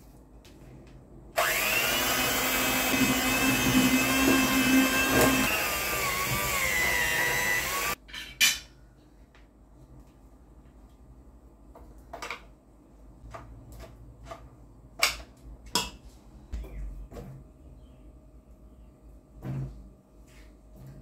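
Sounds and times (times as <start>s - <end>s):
electric hand mixer whining: 1.4s - 8.0s.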